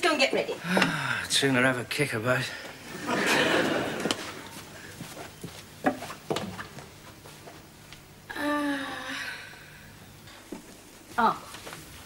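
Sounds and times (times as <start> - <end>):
hurried footsteps: 3.6 - 7.7.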